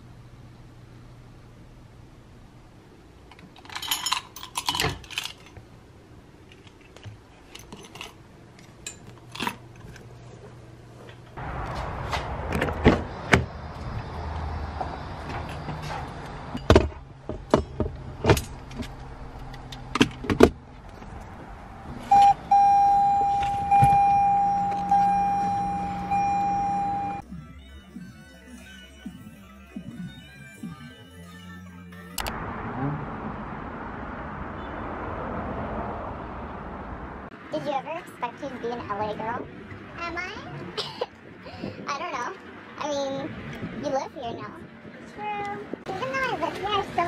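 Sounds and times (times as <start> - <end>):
car warning chime: 22.1 - 27.2
car keys jangling: 22.8 - 26.9.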